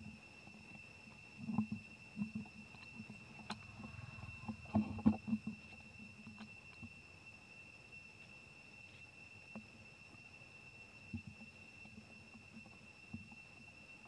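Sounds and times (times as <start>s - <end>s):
soft rustles and thumps: 1.5s - 6.5s.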